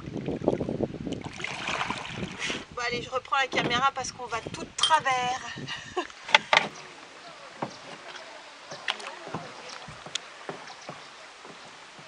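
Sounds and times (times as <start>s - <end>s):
water splashing off paddle: 0.0s - 2.7s, 6.2s - 12.0s.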